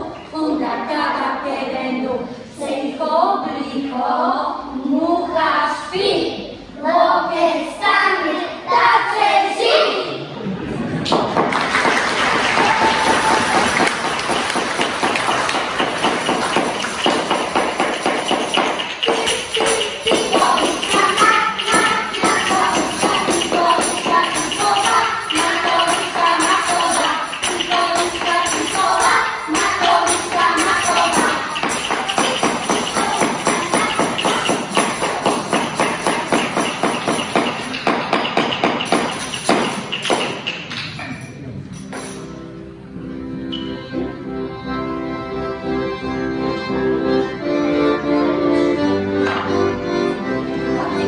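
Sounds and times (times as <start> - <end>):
music with fast steady beat: 12.6 - 40.7.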